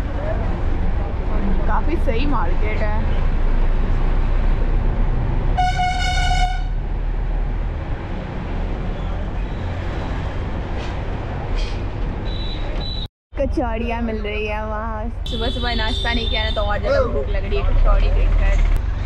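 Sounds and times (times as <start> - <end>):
bus engine and road rumble: 0.0 - 19.0
vehicle horn blast: 5.6 - 6.8, 15.3 - 17.0.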